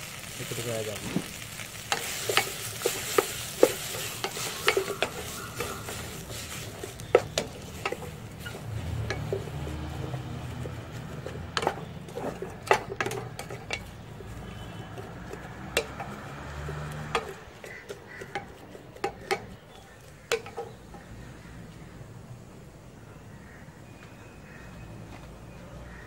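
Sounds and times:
wooden spatula scraping pot: 0:01.0 - 0:21.1.

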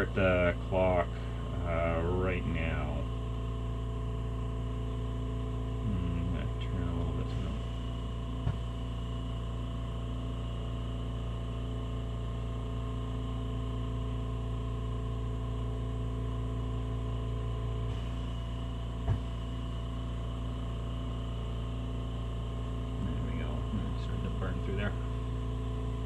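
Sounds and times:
steady tonal hum: 0:00.0 - 0:26.0.

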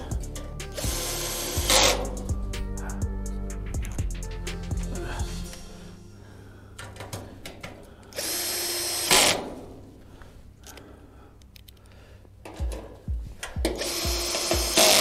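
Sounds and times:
power drill whining: 0:00.7 - 0:02.3, 0:08.2 - 0:09.6, 0:13.6 - 0:15.0.

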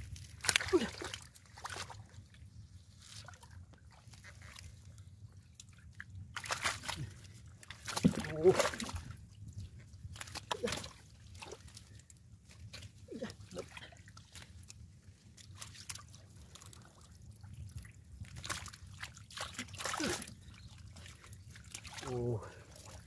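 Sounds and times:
hands sloshing through muddy water: 0:00.0 - 0:23.0
water trickling: 0:05.6 - 0:23.0.

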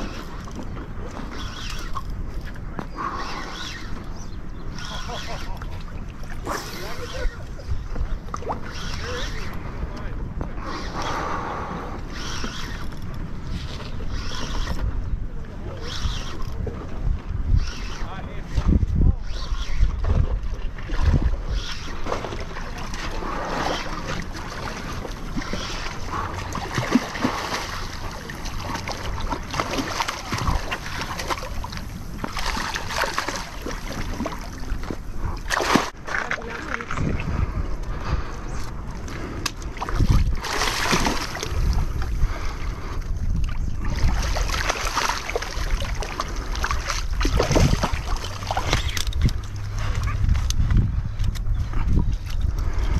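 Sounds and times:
wind noise on microphone: 0:00.0 - 0:52.9
fish thrashing and splashing water: 0:20.0 - 0:37.0, 0:39.7 - 0:42.2, 0:43.4 - 0:50.5.

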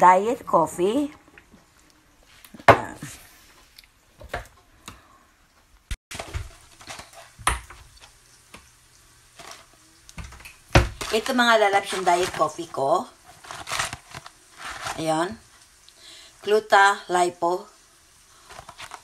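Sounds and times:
kitchen things knocking and clinking: 0:06.1 - 0:08.0, 0:10.2 - 0:12.5.

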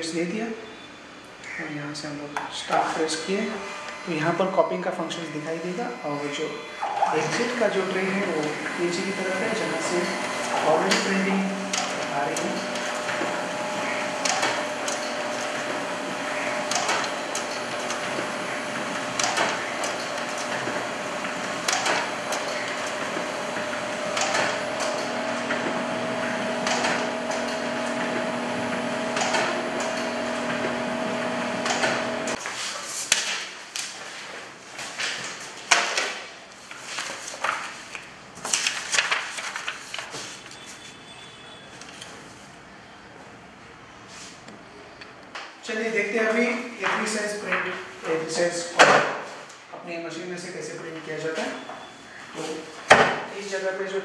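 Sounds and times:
laser copier humming and clacking: 0:02.4 - 0:32.4, 0:46.0 - 0:49.2
clicks of sheets handled: 0:32.4 - 0:40.8
paper rustling: 0:32.4 - 0:41.0.

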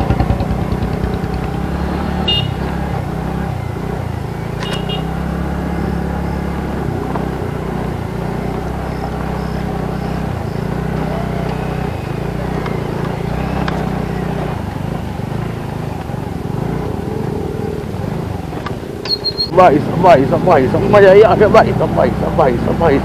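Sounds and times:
motorcycle engine running: 0:00.0 - 0:23.0
short high beeps: 0:19.0 - 0:19.6.

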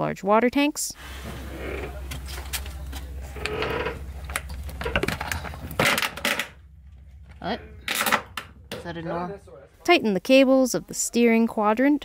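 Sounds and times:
electric water pump buzzing: 0:01.0 - 0:07.4.

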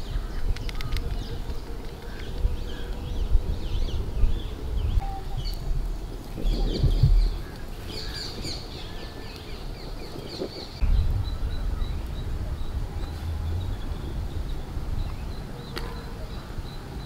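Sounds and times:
small birds chirping: 0:00.0 - 0:17.0
low rumble: 0:10.7 - 0:15.7.

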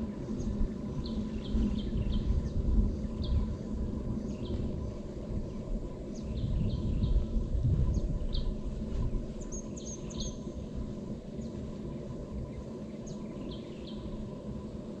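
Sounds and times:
low outdoor rumble: 0:00.0 - 0:15.0
birds chirping: 0:09.4 - 0:10.6, 0:11.3 - 0:14.4.

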